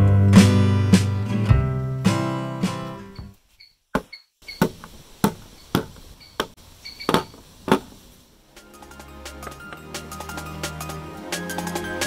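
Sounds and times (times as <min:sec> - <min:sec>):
acoustic guitar music: 0:00.0 - 0:03.4.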